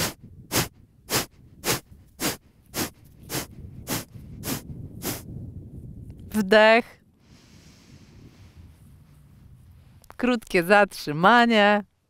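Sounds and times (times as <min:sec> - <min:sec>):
forced exhalations through nose: 0:00.0 - 0:05.3, 0:07.2 - 0:08.7.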